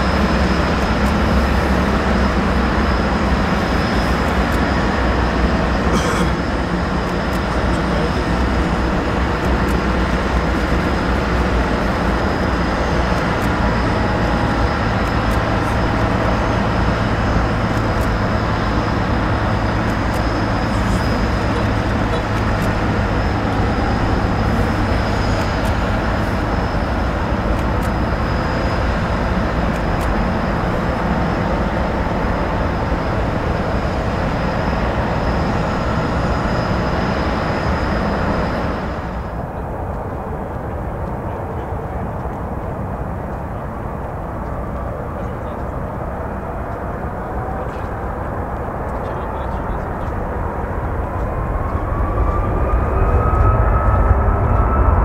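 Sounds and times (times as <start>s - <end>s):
jet engines running: 0.0s - 55.0s.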